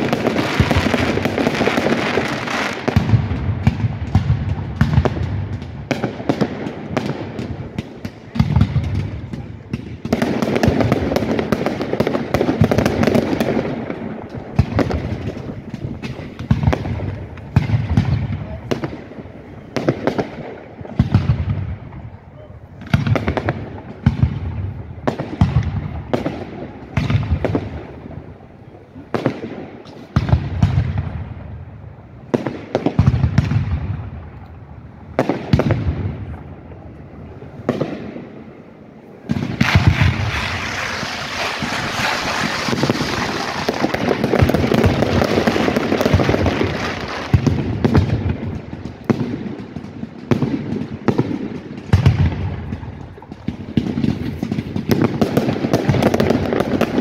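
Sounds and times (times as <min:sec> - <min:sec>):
firework crackling hiss: 0:00.0 - 0:21.8, 0:39.2 - 0:57.0
firework shells bursting: 0:39.2 - 0:57.0.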